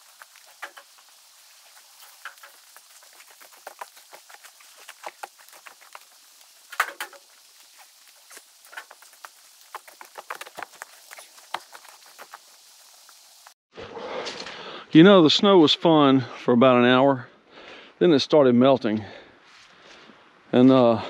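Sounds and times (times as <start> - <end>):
water drips ticking: 0.0 - 13.5.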